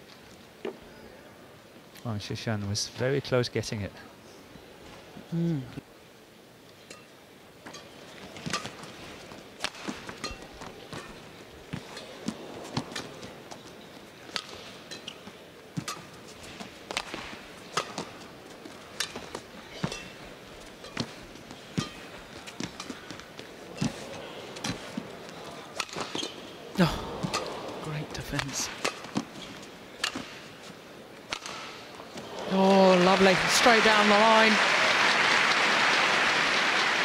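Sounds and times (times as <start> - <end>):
low arena hum: 0.0 - 37.0
rackets hitting shuttlecock: 9.6 - 13.1, 15.8 - 18.2, 25.7 - 26.4, 27.0 - 27.8, 28.4 - 30.6, 31.2 - 33.2.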